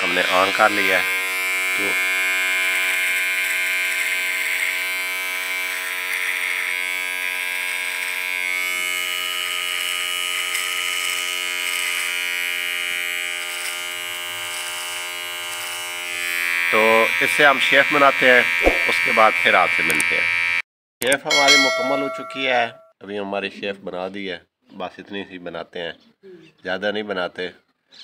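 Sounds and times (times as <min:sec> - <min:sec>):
electric beard trimmer buzzing: 0:00.0 - 0:20.6.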